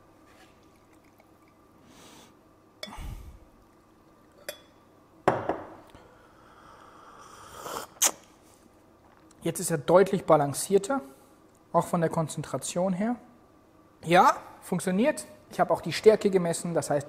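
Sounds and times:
liquid pouring into glass: 0:00.6 - 0:01.7
glassware clinking: 0:04.3 - 0:05.7.

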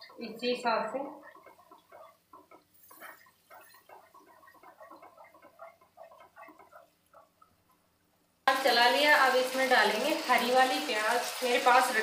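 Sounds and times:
wooden spatula scraping metal pan: 0:00.0 - 0:06.8.

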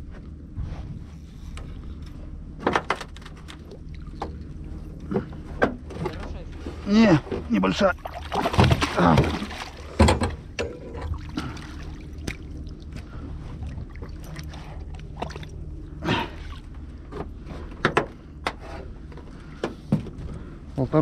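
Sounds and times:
low steady hum: 0:00.0 - 0:21.0
knocks and clicks of handling: 0:17.1 - 0:20.3.

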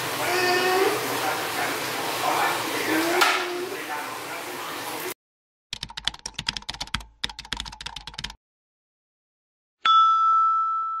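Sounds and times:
bell-like ding: 0:09.8 - 0:11.0.

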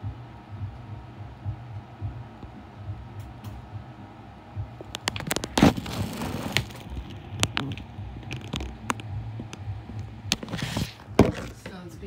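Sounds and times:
low steady hum: 0:00.0 - 0:12.0
sharp knocks and clicks: 0:04.8 - 0:05.8.

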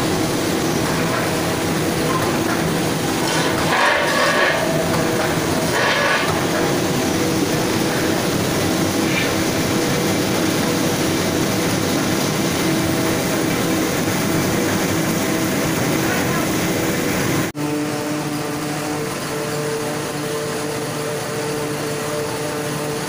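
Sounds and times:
factory machinery drone: 0:00.0 - 0:23.0
motors and rollers humming: 0:00.0 - 0:23.0.

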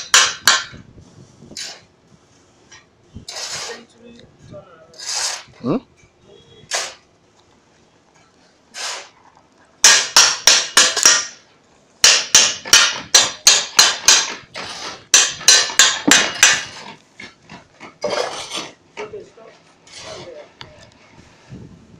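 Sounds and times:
hand tool striking cement: 0:00.0 - 0:00.8, 0:09.8 - 0:11.4, 0:12.0 - 0:19.2.

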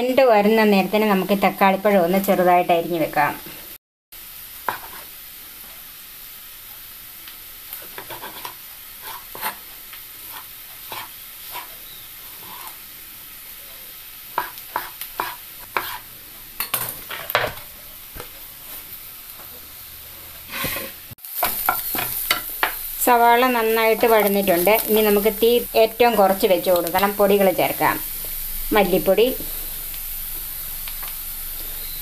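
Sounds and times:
onions sizzling in a pan: 0:00.0 - 0:32.0
spatula stirring in a pan: 0:04.6 - 0:05.2, 0:07.7 - 0:12.9, 0:14.3 - 0:23.1
knife chopping on wooden board: 0:14.4 - 0:16.0.

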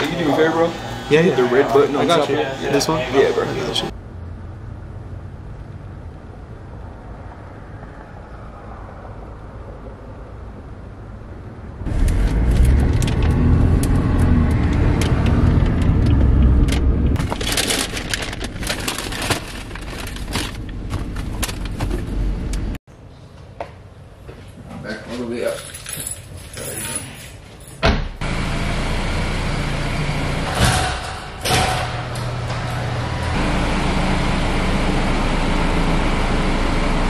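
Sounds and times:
paper bags rustling: 0:17.2 - 0:22.0.

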